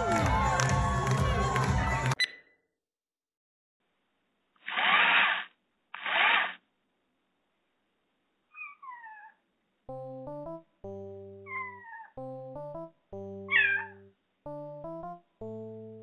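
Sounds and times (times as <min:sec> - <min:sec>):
cat meowing and yowling: 0:08.5 - 0:09.4, 0:11.4 - 0:12.2, 0:13.5 - 0:14.1
background music stepped tones: 0:09.9 - 0:11.4, 0:12.2 - 0:16.0.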